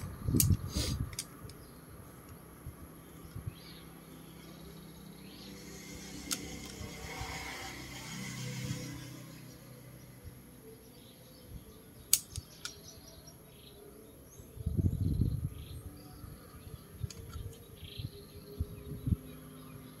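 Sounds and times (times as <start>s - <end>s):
sharp clicks: 12.1s - 13.0s.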